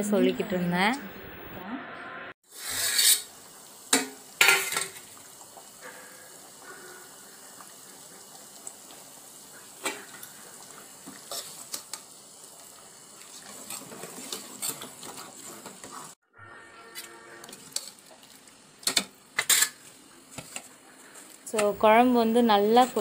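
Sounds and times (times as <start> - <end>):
metal pot clanking: 3.9 - 5.0.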